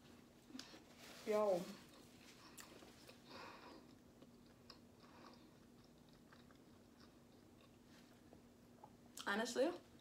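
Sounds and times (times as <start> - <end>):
soft rustle: 0.0 - 3.1
faint steady hum: 0.0 - 10.0
person chewing: 1.8 - 9.0.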